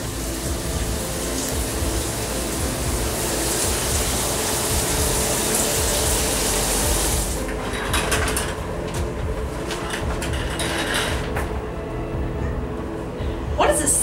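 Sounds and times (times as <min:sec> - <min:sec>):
shower spray hissing: 0:00.0 - 0:07.5.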